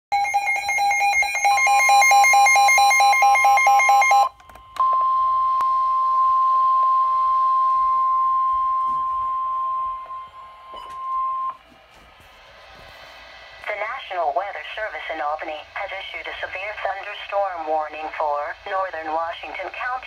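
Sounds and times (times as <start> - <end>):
steady warning alarm tone: 0.1 - 11.7
rapid pulsing alarm beeps: 0.2 - 11.6.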